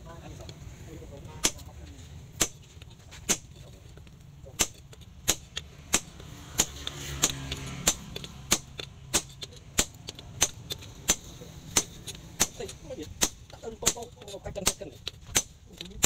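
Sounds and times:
hammer striking steel on anvil: 1.4s - 1.7s, 4.6s - 15.6s.

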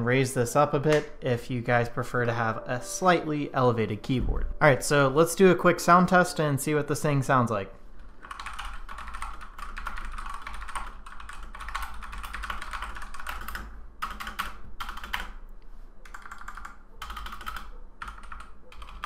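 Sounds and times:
mechanical keyboard typing: 8.2s - 15.4s, 16.0s - 19.0s.

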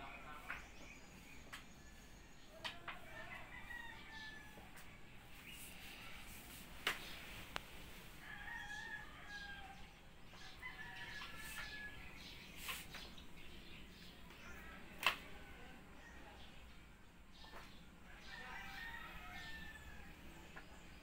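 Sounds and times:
rooster crowing faintly: 2.5s - 6.7s, 8.0s - 12.8s.

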